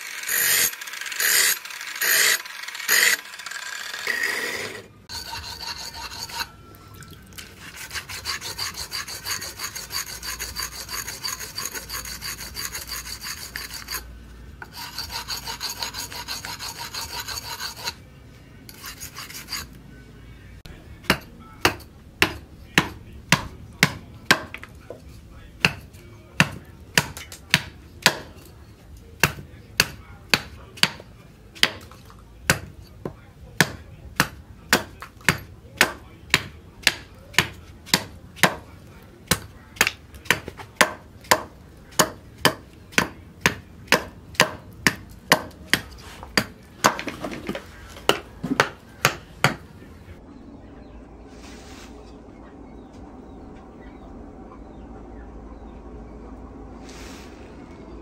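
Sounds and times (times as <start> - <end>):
axe scraping on sharpening stone: 4.1 - 6.6, 7.4 - 18.0, 18.7 - 19.8
hammer knocking on axe blade: 21.0 - 24.7, 25.6 - 28.4, 31.6 - 38.7, 39.3 - 49.7.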